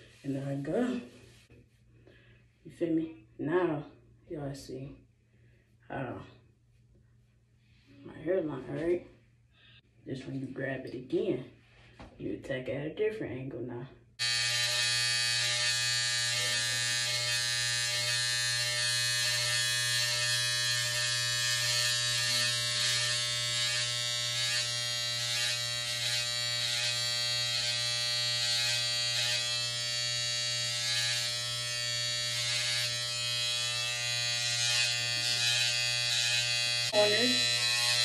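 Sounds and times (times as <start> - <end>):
electric hair trimmer buzzing: 14.2 - 38.0.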